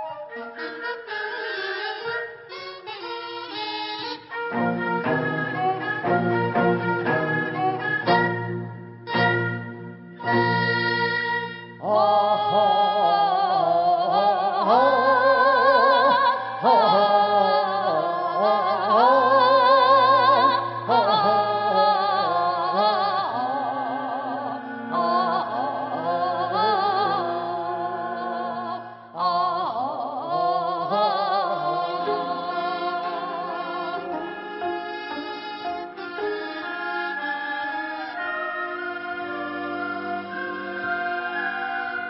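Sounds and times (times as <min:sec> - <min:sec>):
voices singing with wide vibrato: 0:00.0 - 0:42.0
traditional orchestra playing: 0:00.3 - 0:12.2, 0:31.5 - 0:42.0.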